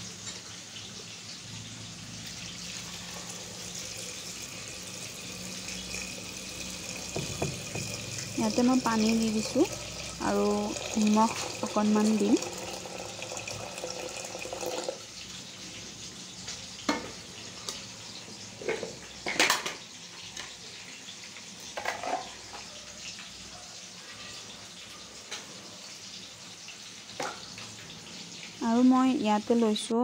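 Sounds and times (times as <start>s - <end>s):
water pouring into pot: 1.7s - 17.4s
knocks against pot: 7.1s - 8.1s.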